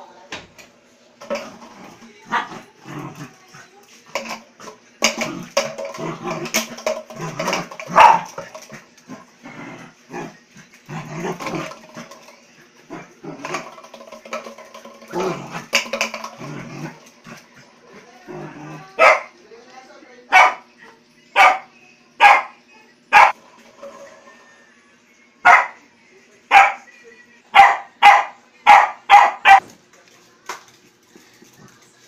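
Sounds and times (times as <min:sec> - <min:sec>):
puppy play growls: 0:01.2 - 0:19.0.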